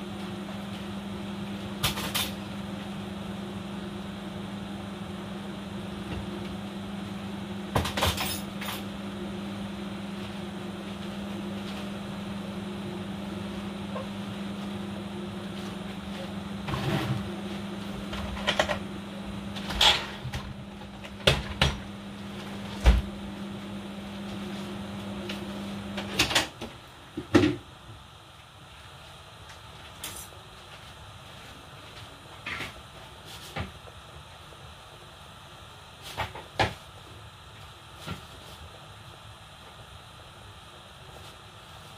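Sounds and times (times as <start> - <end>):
electrical hum: 0.0 - 41.9.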